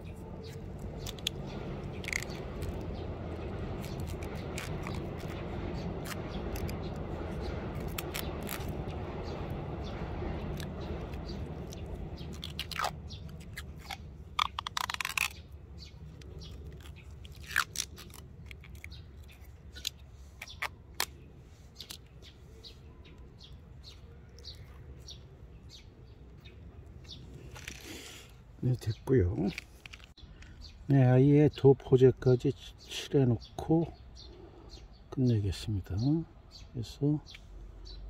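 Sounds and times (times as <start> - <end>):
tape rasping: 0.0 - 22.2
tape stretching clicks and crackles: 0.4 - 9.4, 10.4 - 21.2, 29.3 - 30.5.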